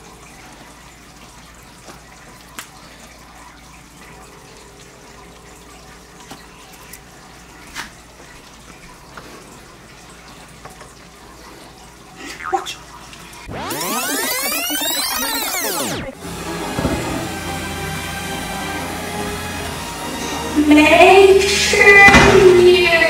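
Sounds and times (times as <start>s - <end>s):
electronic music with sweeping tones: 13.5s - 21.8s.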